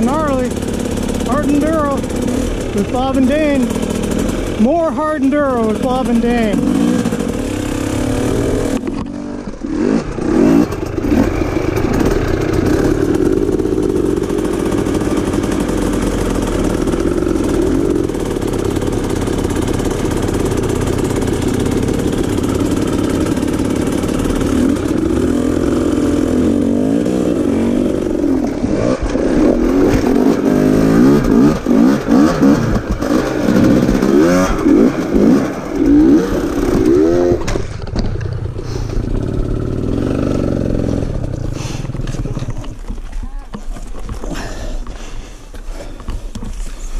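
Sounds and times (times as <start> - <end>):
dirt bike engine revving: 0.0 - 42.8.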